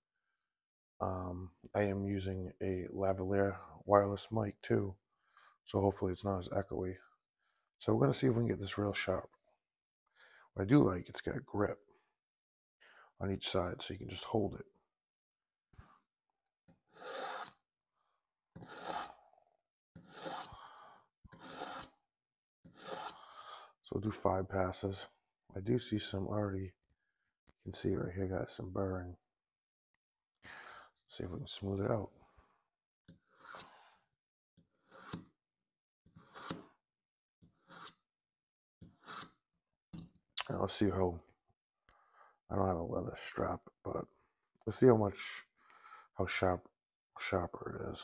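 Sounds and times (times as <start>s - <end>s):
knife scraping through sharpener: 16.9s - 17.6s, 18.6s - 19.2s, 20.0s - 20.6s, 21.3s - 22.0s, 22.7s - 23.2s, 33.3s - 33.7s, 34.9s - 35.3s, 36.2s - 36.7s, 37.6s - 38.0s, 38.9s - 39.4s.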